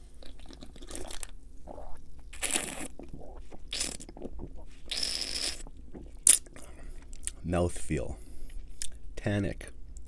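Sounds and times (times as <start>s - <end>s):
wet mouth noises: 0.0s - 7.4s.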